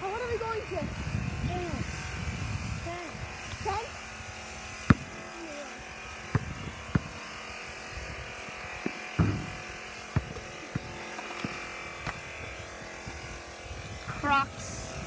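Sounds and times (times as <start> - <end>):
steady buzz: 0.0 - 15.0
basketball bouncing on pavement: 4.7 - 13.2.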